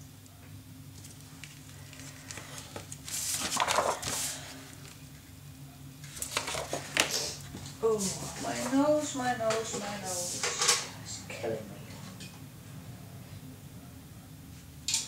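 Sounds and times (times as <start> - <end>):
low steady hum: 0.0 - 15.0
paper rustling and sliding: 1.4 - 5.0, 6.1 - 7.4.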